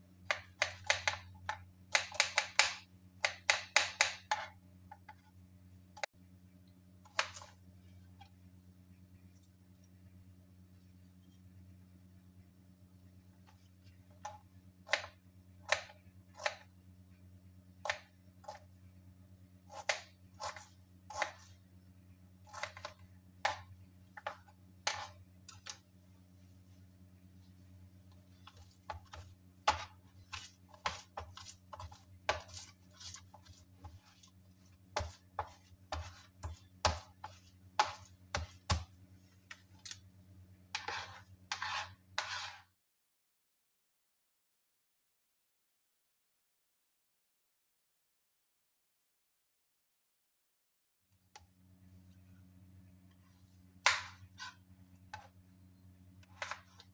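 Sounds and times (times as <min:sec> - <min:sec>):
low steady hum: 0:00.0 - 0:42.6, 0:51.4 - 0:56.9
knife chopping on plastic board: 0:00.2 - 0:05.2, 0:07.0 - 0:07.6, 0:14.2 - 0:16.7, 0:17.8 - 0:18.7, 0:19.7 - 0:21.6, 0:22.4 - 0:25.8, 0:28.1 - 0:40.0, 0:40.7 - 0:42.6, 0:53.8 - 0:55.3, 0:56.2 - 0:56.9
knife blade scraping board: 0:19.7 - 0:21.5, 0:24.2 - 0:25.8, 0:28.3 - 0:38.9, 0:40.7 - 0:42.7, 0:53.8 - 0:55.3, 0:56.2 - 0:56.9.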